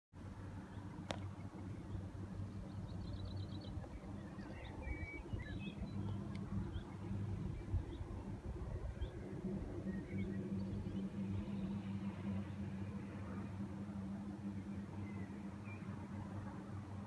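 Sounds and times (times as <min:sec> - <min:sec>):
distant diesel engines droning: 0:00.2 - 0:17.0
small birds chirping: 0:00.7 - 0:12.6.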